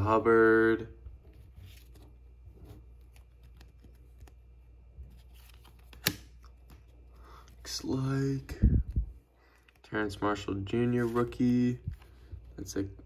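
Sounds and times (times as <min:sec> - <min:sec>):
trading cards rustling: 0:01.3 - 0:08.1, 0:09.4 - 0:12.9
card snapping: 0:05.5 - 0:06.8.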